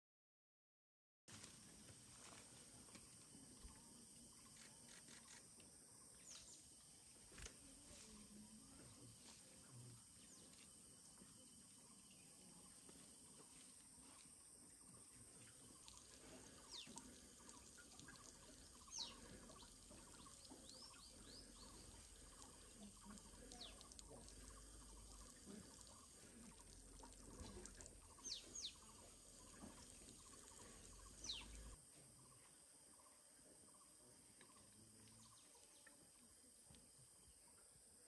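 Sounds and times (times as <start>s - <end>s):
faint forest ambience: 1.3s - 38.0s
whistled bird calls: 18.8s - 21.9s, 28.2s - 28.9s, 31.2s - 31.7s.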